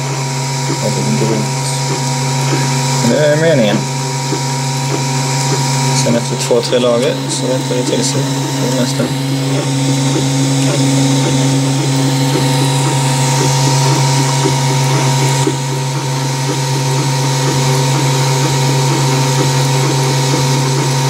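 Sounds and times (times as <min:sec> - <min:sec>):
stepper motors whining tones: 0:00.0 - 0:21.0.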